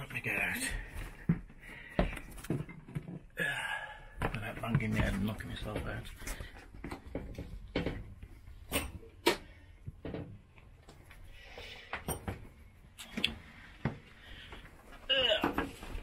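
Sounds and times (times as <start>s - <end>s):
sharp knocks and clunks: 6.8s - 10.5s.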